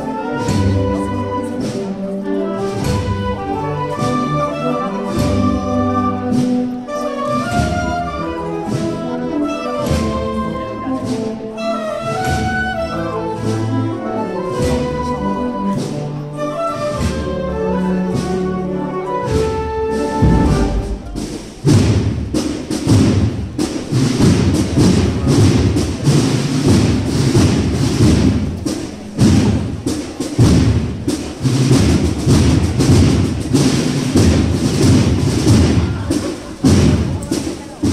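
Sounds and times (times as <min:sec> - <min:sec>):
wind band playing march chords: 0:00.0 - 0:37.9
loud thumping and rumbling: 0:20.2 - 0:23.6.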